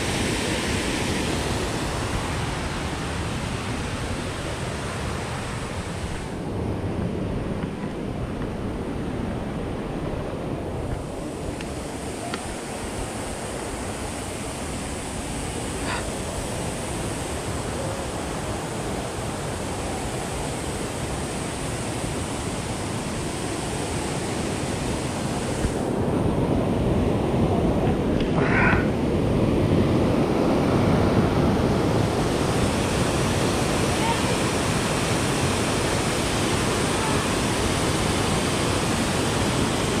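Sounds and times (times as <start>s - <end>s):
waterfall rushing: 11.1s - 26.0s, 31.2s - 40.0s.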